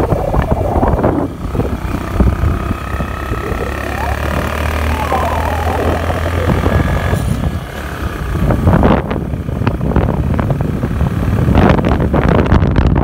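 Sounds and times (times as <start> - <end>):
scooter engine hum: 0.0 - 12.6
wind buffeting microphone: 0.0 - 13.0.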